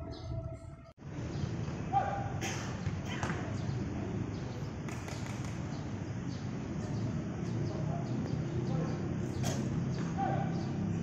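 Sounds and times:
faint distant voices: 2.4s - 11.0s
footballs thudding: 2.7s - 3.6s, 9.4s - 10.4s.

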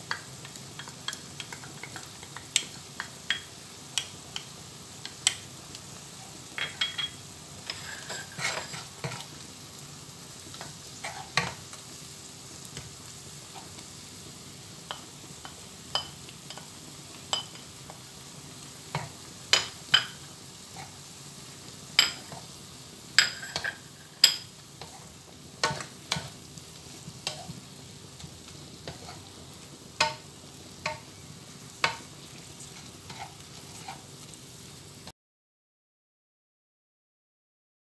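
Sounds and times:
spatula knocking and scraping wok: 0.0s - 5.5s, 6.1s - 9.4s, 10.5s - 11.8s, 13.5s - 14.0s, 14.8s - 18.1s, 18.9s - 21.0s, 21.7s - 34.2s
frying sizzle: 0.0s - 35.1s.

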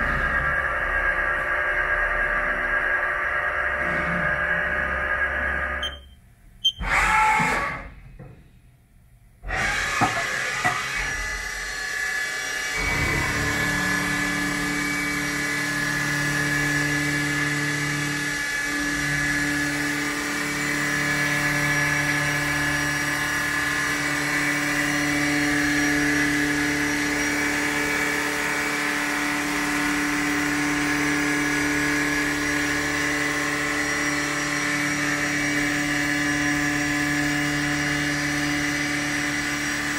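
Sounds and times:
milling machine hum and whine: 9.6s - 39.9s.

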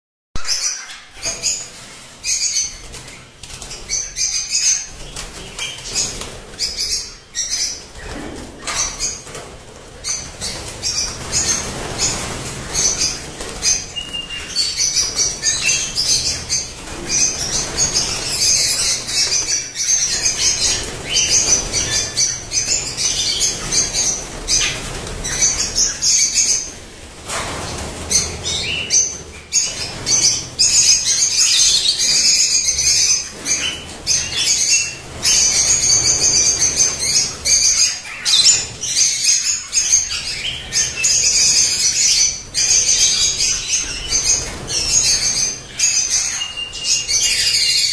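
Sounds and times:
wings fluttering: 0.4s - 47.6s
birds chattering: 0.4s - 47.9s.

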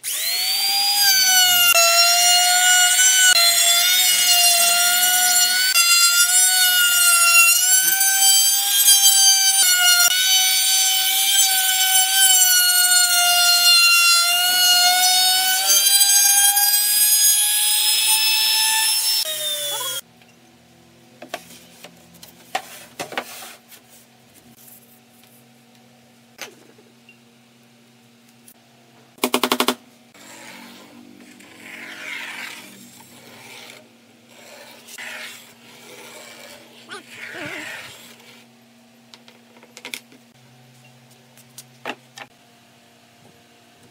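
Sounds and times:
router whining cutting wood: 0.0s - 20.0s.

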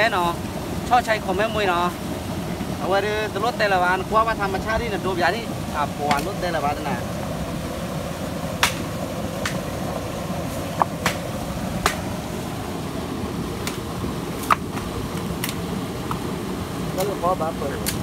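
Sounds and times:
water rushing over rapids: 0.0s - 18.0s
sharp knocks: 8.6s - 9.6s.

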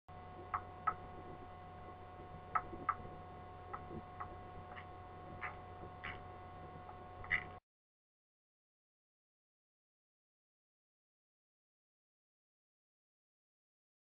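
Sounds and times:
low electrical hum: 0.1s - 7.6s.

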